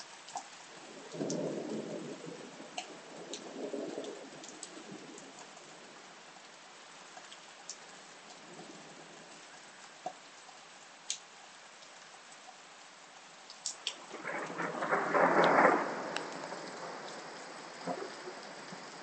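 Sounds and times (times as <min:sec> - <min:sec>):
steady rain falling: 0:00.0 - 0:19.0
thunder rumbling: 0:01.1 - 0:05.2, 0:14.0 - 0:19.0.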